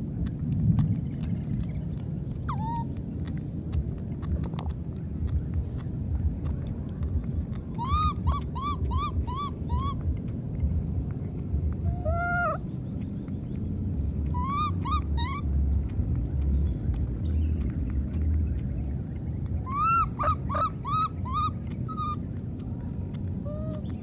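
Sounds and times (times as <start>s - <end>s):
steady low rumble: 0.0s - 24.0s
baby monkey chirping: 2.3s - 3.4s, 5.2s - 10.8s, 11.7s - 24.0s.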